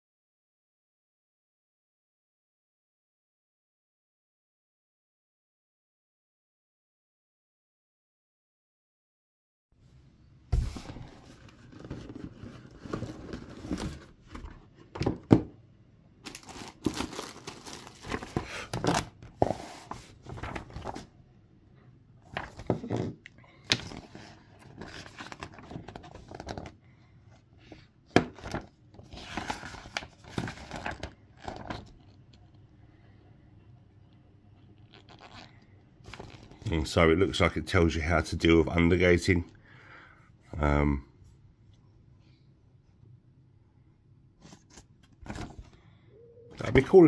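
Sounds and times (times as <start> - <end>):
paper and packaging rustling: 10.6 - 15.2, 16.2 - 21.1, 22.2 - 26.8, 27.7 - 32.5, 34.9 - 36.7, 44.4 - 45.8
pages of a manual turning: 10.7 - 14.6, 16.2 - 21.1, 22.2 - 26.8, 27.7 - 32.6, 34.8 - 36.8, 44.4 - 45.8, 46.6 - 47.0.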